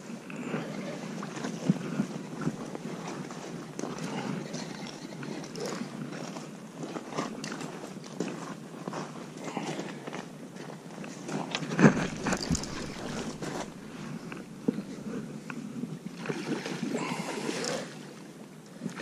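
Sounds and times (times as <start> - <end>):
fishing reel clicks and rustles: 11.9 - 14.8
flowing river water: 11.9 - 15.4, 16.0 - 19.0.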